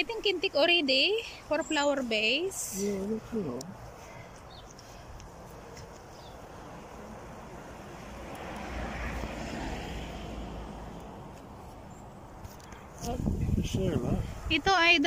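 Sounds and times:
passing vehicle rushing: 0:06.4 - 0:12.4.

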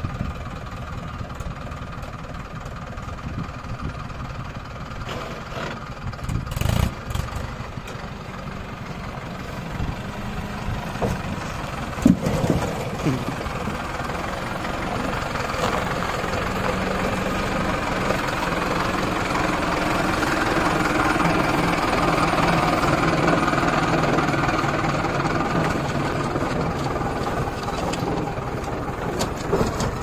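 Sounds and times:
diesel engine running at low revs: 0:00.0 - 0:30.0.

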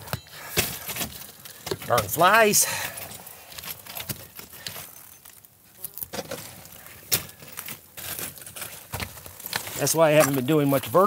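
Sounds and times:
rustling dry grass and clothing: 0:00.4 - 0:11.0
footsteps on gravel: 0:06.0 - 0:11.0.

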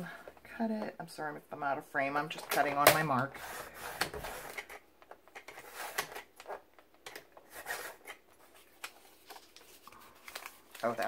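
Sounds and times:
card scraping and rustling: 0:02.5 - 0:11.0.

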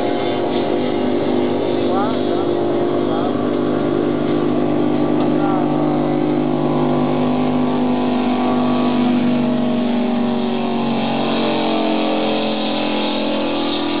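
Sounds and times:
outboard engine at high speed: 0:00.0 - 0:14.0.

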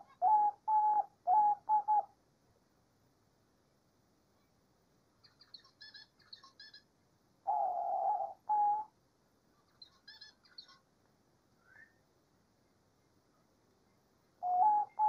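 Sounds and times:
dove cooing: 0:00.0 - 0:02.1, 0:07.5 - 0:08.9, 0:14.4 - 0:15.0.

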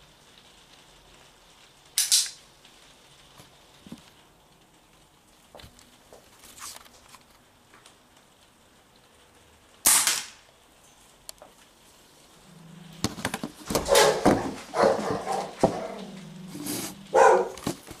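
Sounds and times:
pellet gun shot: 0:09.9 - 0:10.4.

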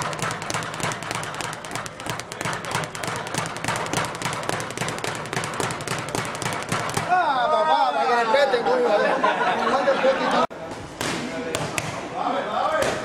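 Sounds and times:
speed bag being punched: 0:00.0 - 0:07.2.

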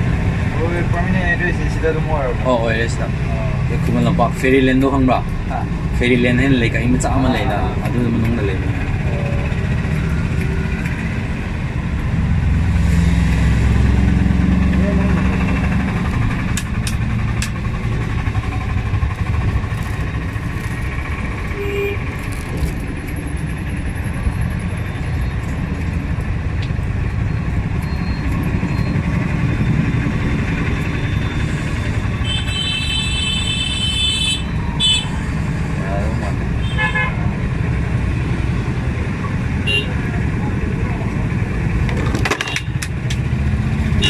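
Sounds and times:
road traffic rumble: 0:00.0 - 0:44.0
vehicle horn: 0:21.5 - 0:22.0, 0:32.2 - 0:35.1, 0:36.6 - 0:37.2, 0:39.6 - 0:40.0.

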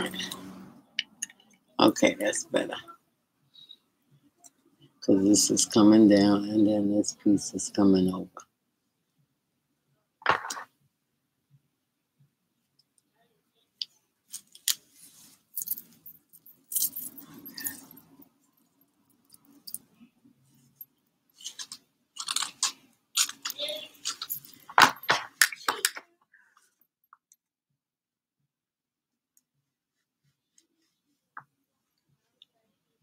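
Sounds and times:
metal bangles clinking: 0:00.0 - 0:01.6, 0:14.3 - 0:25.9.

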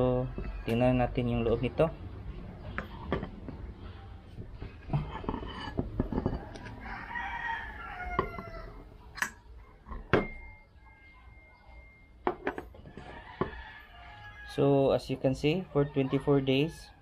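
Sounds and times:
rooster crowing: 0:00.1 - 0:01.1, 0:06.3 - 0:08.9, 0:12.8 - 0:14.9, 0:15.5 - 0:17.0.

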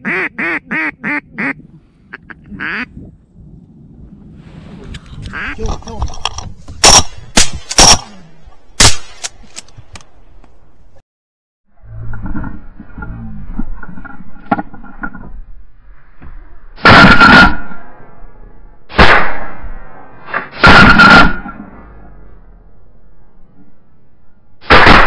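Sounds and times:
shotgun blasts: 0:06.8 - 0:08.2, 0:08.8 - 0:09.4, 0:18.9 - 0:21.5, 0:24.6 - 0:25.0.

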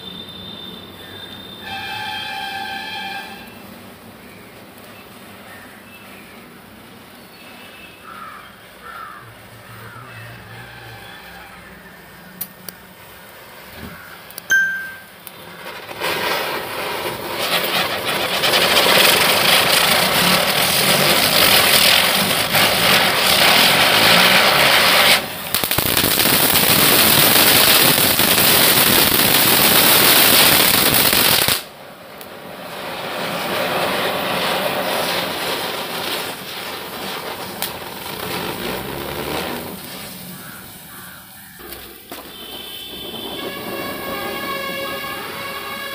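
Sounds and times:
firecrackers crackling hiss: 0:00.0 - 0:45.9.

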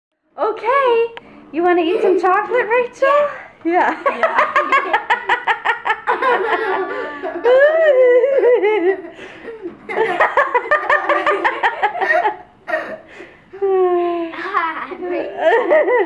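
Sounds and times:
girl giggling: 0:01.9 - 0:02.3, 0:04.1 - 0:16.0.

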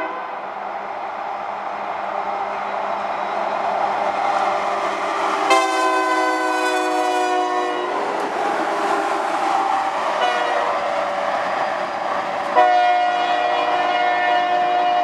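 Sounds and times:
locomotive air horn blasts: 0:00.0 - 0:00.3, 0:05.5 - 0:08.1, 0:10.2 - 0:10.7, 0:12.6 - 0:15.0
rolling train noise: 0:00.0 - 0:15.0.

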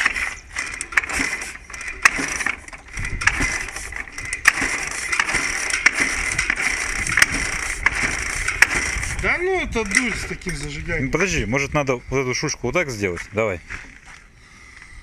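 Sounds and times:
motorcycle engine kick-started: 0:00.0 - 0:11.3.

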